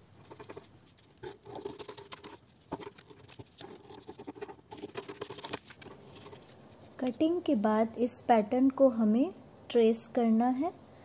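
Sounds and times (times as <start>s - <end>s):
scissors snipping paper: 1.2s - 6.5s.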